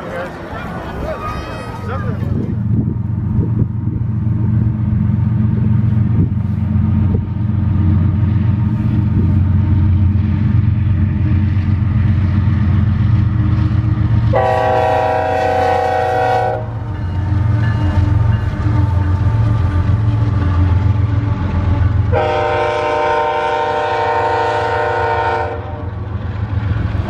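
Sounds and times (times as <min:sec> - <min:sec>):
diesel locomotive engine drone: 0:00.0 - 0:27.0
locomotive air horn blast: 0:14.3 - 0:16.8, 0:22.1 - 0:25.9.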